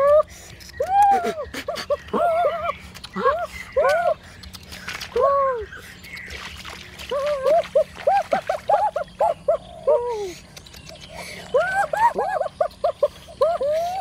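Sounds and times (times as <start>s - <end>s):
animal whining: 0.0s - 4.2s.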